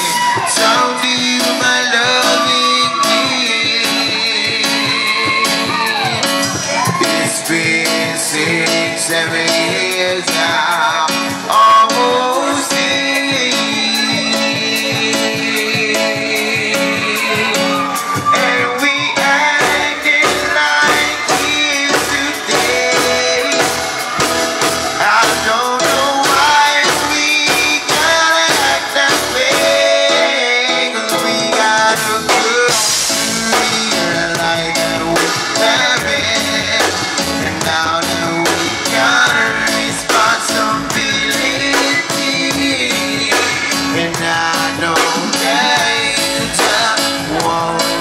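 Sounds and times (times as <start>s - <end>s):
live band playing: 0.0s - 48.0s
person singing: 0.0s - 48.0s
steady drum beat: 0.0s - 48.0s
saxophone: 11.1s - 31.6s.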